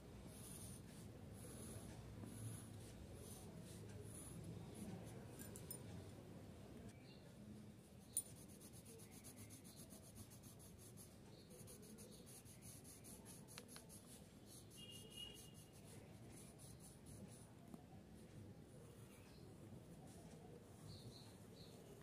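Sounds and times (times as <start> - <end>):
pencil scratching on paper: 0.2 - 5.4, 8.0 - 22.0.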